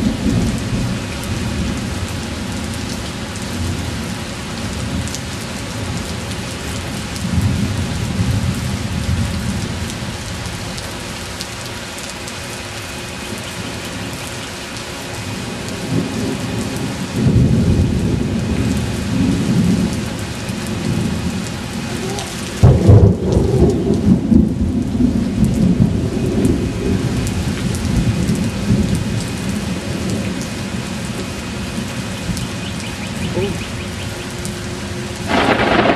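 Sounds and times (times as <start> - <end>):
rolling thunder: 0.0 - 2.5, 15.8 - 21.9, 22.5 - 30.8, 35.2 - 35.9
steady rain: 0.0 - 35.9
loud thunderclap: 22.6 - 27.2, 35.3 - 35.9.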